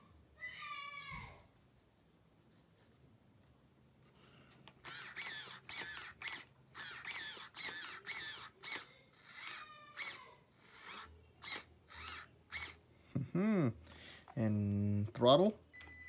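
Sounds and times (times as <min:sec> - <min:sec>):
steering servo whining: 0:04.8 - 0:12.8.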